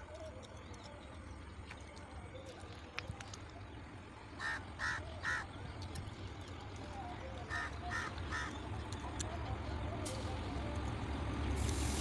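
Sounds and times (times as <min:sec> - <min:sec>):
crow cawing: 0:04.4 - 0:05.5, 0:07.5 - 0:08.6.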